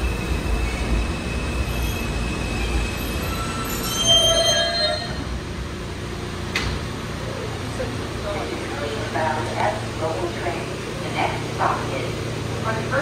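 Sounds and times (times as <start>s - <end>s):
subway train rumbling: 0.0s - 13.0s
high brake squeals: 0.2s - 5.3s.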